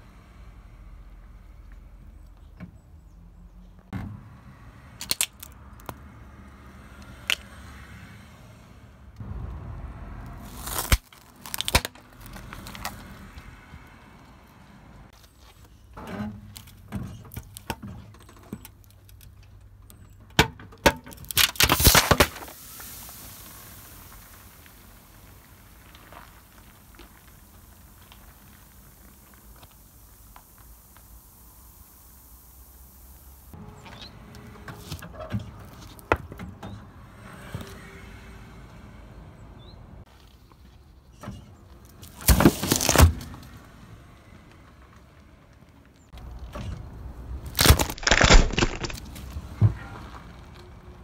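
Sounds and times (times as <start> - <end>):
cans cracking and bursting: 5.0 - 6.0, 10.4 - 13.2, 20.8 - 33.2, 42.0 - 43.3, 47.4 - 49.3
tyre crunching vegetable: 10.4 - 13.4, 21.2 - 22.6, 42.0 - 43.4, 47.4 - 49.9
soda hissing out: 22.5 - 24.7, 28.4 - 33.5.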